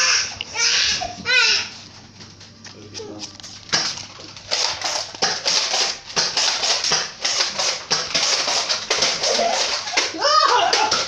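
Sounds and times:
child's voice: 0.0 - 1.8.

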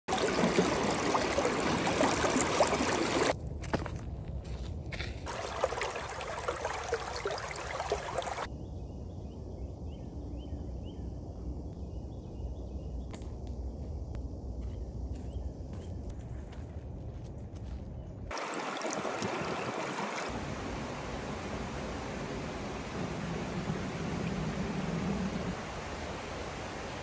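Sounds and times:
stream rushing over rocks: 0.1 - 3.3, 5.3 - 8.5, 18.3 - 24.5, 25.3 - 27.0.

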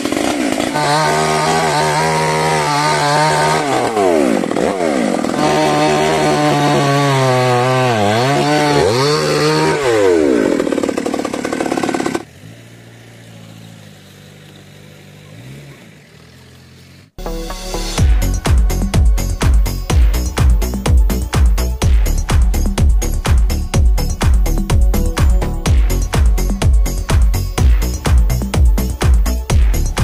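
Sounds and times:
chainsaw cutting wood: 0.0 - 17.1.

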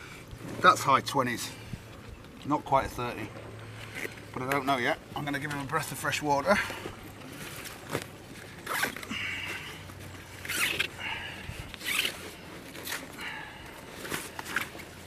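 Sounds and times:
zip being pulled: 7.3 - 15.0.

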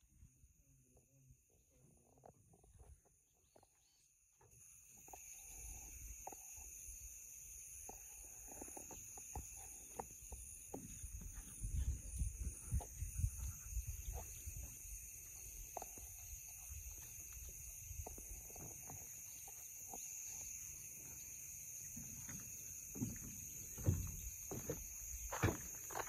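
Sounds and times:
insects calling: 0.0 - 26.0
soft knocks and thumps: 21.9 - 25.8.

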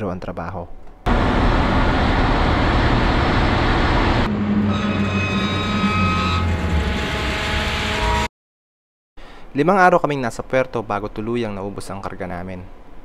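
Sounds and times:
steady whining tones: 1.1 - 8.3.

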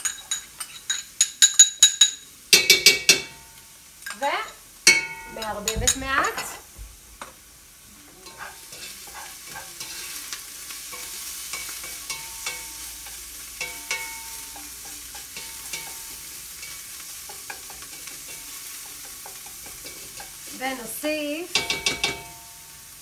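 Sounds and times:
onion sizzling in oil: 0.0 - 23.0
spoon scraping and knocking pot: 4.9 - 6.6, 10.9 - 20.4, 21.5 - 22.5.

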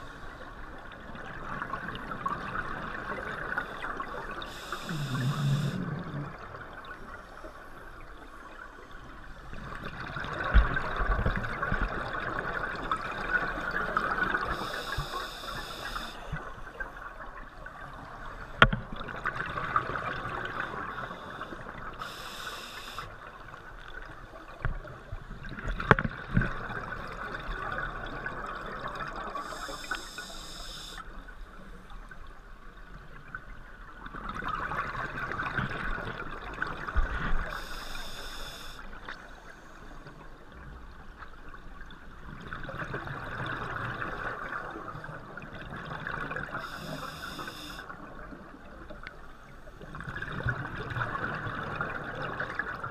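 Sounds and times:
regulator inhale hiss: 4.4 - 6.0, 14.5 - 16.4, 22.0 - 23.1, 29.4 - 31.0, 37.4 - 39.9, 46.6 - 47.9
exhaust bubbling underwater: 4.8 - 6.8.

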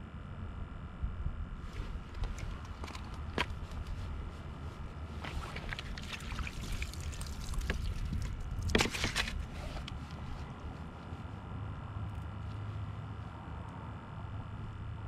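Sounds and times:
wind rumble on microphone: 0.0 - 15.0
tool clattering on ice: 2.1 - 4.0, 5.2 - 9.9.

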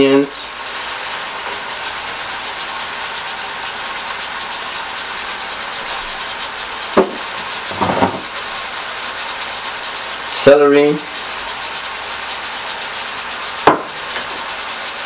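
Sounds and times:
chicken and onions sizzling in pan: 0.1 - 15.0
sharp knock: 7.0 - 7.2, 13.7 - 13.9.

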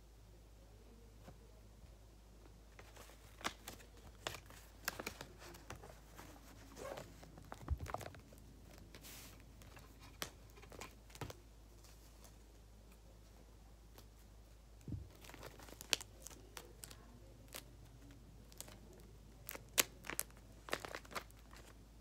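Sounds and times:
paper crinkling and rustling: 2.8 - 12.4, 15.0 - 21.8.

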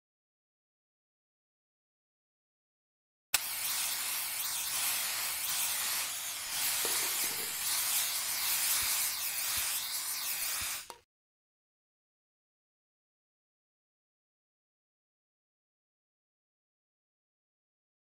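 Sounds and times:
spray-paint cans hissing: 3.4 - 11.1.

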